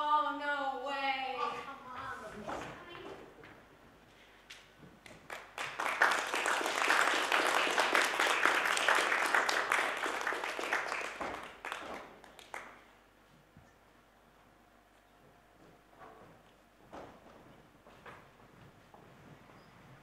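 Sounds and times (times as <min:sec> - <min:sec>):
audience applauding: 0:05.1 - 0:12.9.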